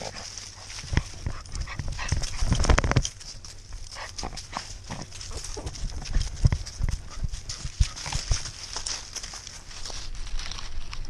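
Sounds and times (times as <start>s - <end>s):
dry grass and leaves brushing: 0.0s - 11.0s
dog footfalls jolting camera: 0.9s - 3.3s.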